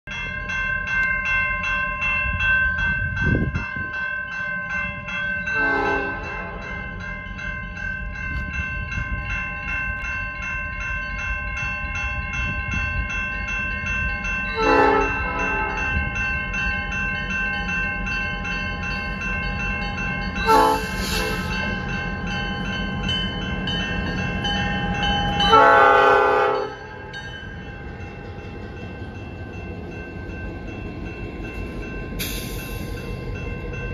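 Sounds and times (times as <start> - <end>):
crossing bell ringing: 0.0 - 33.9
train rumble: 0.1 - 33.9
locomotive air horn blasts: 5.6 - 6.7, 14.6 - 15.9, 20.5 - 21.5, 25.5 - 26.8.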